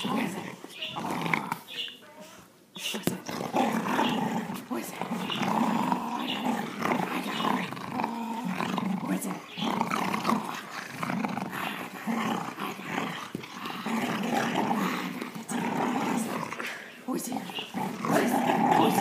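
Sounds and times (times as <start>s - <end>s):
dog growling: 0.0s - 1.7s, 3.0s - 19.0s.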